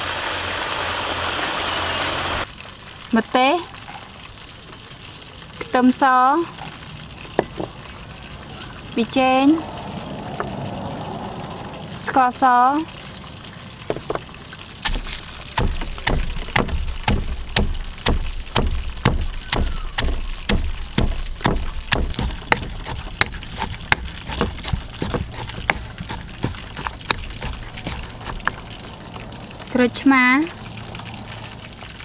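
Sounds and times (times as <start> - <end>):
stone pestle pounding in mortar: 14.8 - 28.6.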